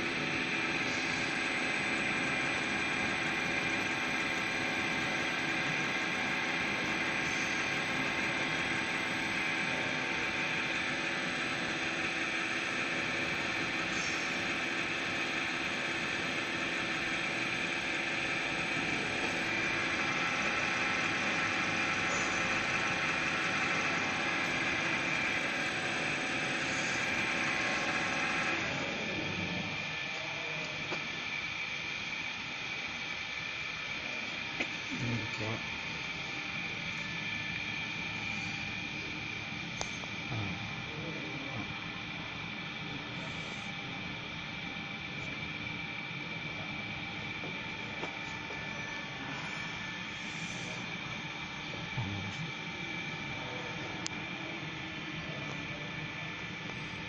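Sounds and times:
machine rotor whirring and whining: 0:00.0 - 0:57.0.

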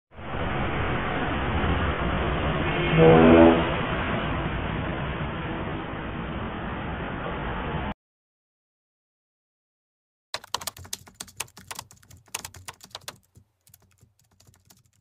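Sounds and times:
computer keyboard typing: 0:10.4 - 0:15.0.

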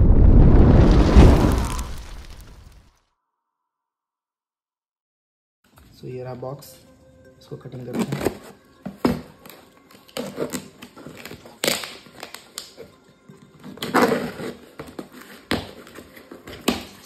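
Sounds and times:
knife cutting tape and cardboard: 0:07.8 - 0:12.9, 0:13.6 - 0:17.0.

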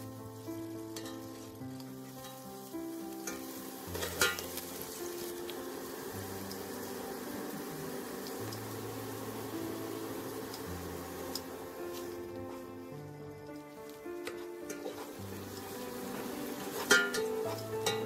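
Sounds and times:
background music with held notes: 0:00.0 - 0:18.0
garlic sizzling in oil: 0:00.0 - 0:18.0
spatula scraping pan: 0:03.3 - 0:05.3, 0:14.2 - 0:18.0.

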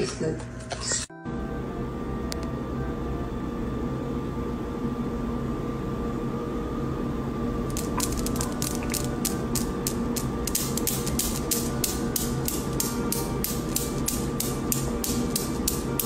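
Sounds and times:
steady background hum: 0:00.0 - 0:16.0
steel balls clacking together: 0:07.7 - 0:16.0.

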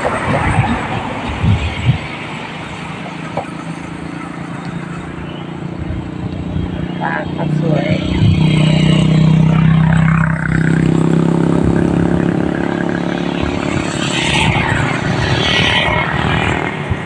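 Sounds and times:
road traffic rumble: 0:00.0 - 0:17.0
vehicles passing by: 0:00.0 - 0:17.0.

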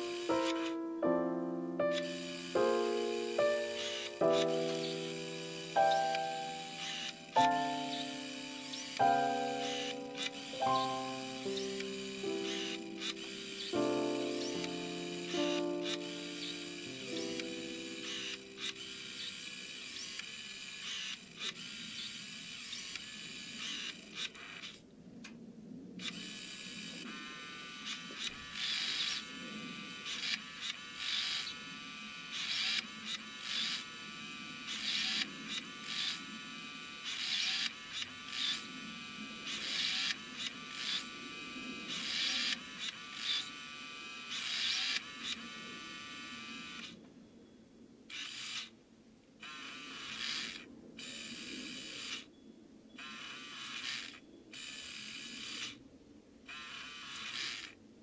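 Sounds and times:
small motor and gears whirring: 0:00.0 - 0:00.8, 0:01.8 - 0:47.0, 0:48.1 - 0:48.8, 0:49.4 - 0:55.8, 0:56.4 - 0:57.8.

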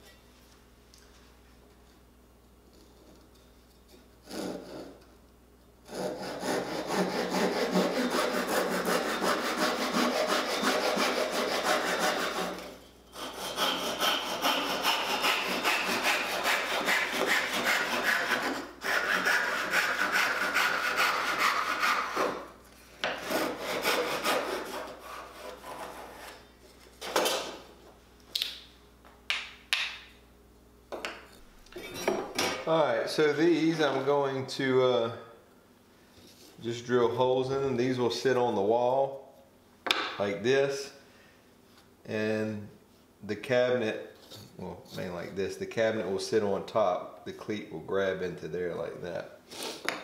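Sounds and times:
hand saw cutting wood: 0:04.2 - 0:05.0, 0:05.8 - 0:26.4.

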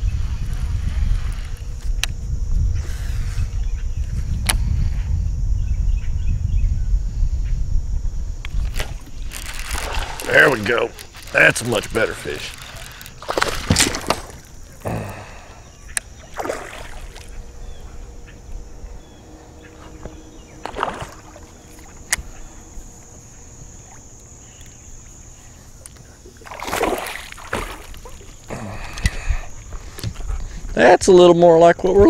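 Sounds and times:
fish splashing at water surface: 0:08.8 - 0:15.3, 0:16.2 - 0:17.4, 0:20.7 - 0:22.0, 0:26.3 - 0:28.8.

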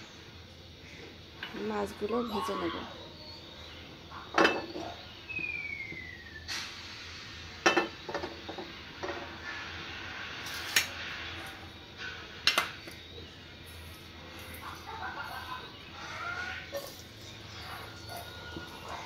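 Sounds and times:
dishes and utensils clinking: 0:04.3 - 0:05.0, 0:07.6 - 0:09.3
falling whistle-like tone: 0:05.3 - 0:06.8.

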